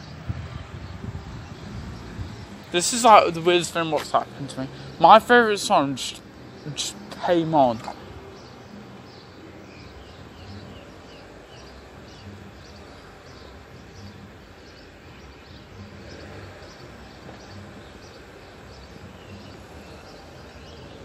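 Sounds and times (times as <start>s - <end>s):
steady low rumble: 0.0s - 4.3s
small birds chirping: 0.0s - 21.0s.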